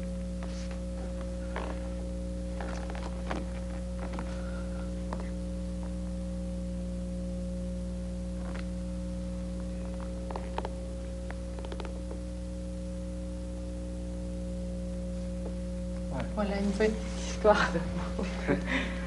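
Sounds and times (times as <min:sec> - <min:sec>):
low hum of fixed tones: 0:00.0 - 0:19.0.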